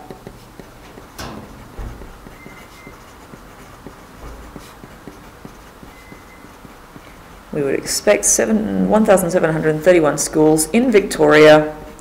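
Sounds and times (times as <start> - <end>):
pen writing on paper: 0.0 - 7.2.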